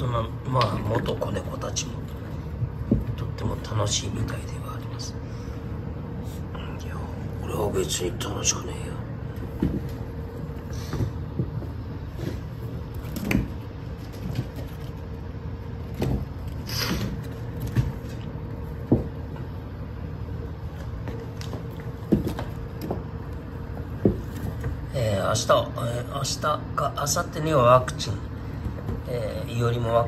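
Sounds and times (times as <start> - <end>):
steady low hum: 0.0 - 30.0
kittens tapping on wooden floor: 2.6 - 3.3, 9.4 - 15.0.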